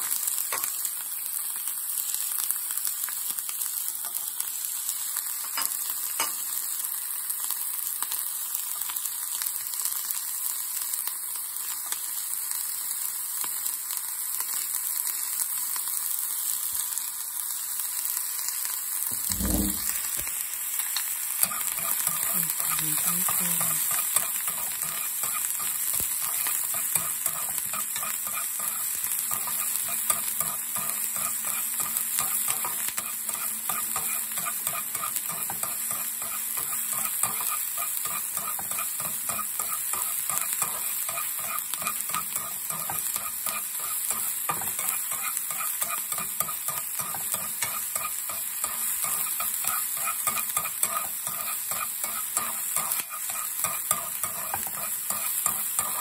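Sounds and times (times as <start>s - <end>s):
onion sizzling in hot oil: 0.0s - 56.0s
utensil scraping and tapping pan: 21.4s - 56.0s.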